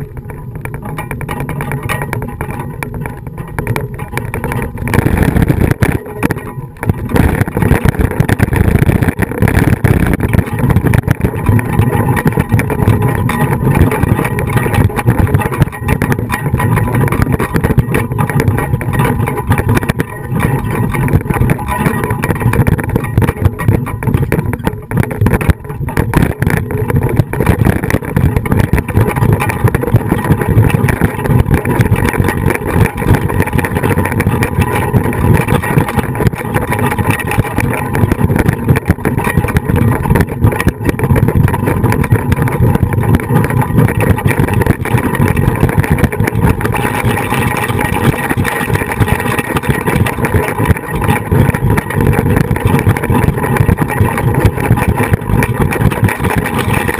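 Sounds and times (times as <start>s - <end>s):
continuous loud rumble: 0.0s - 56.9s.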